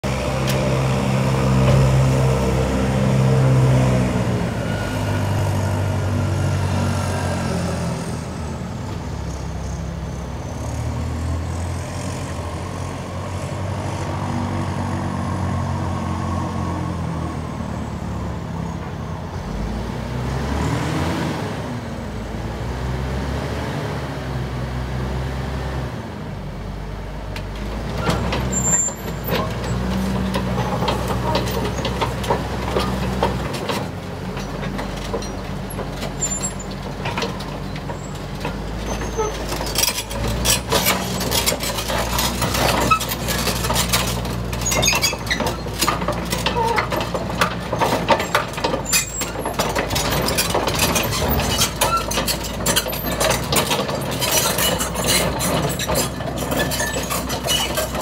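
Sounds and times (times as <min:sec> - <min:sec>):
bulldozer diesel engine running: 0:00.0 - 0:20.3, 0:24.4 - 0:58.0.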